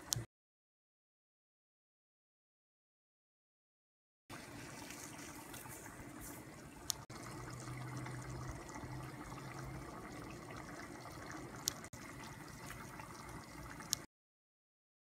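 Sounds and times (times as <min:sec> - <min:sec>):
pot boiling and bubbling: 0:04.3 - 0:14.1.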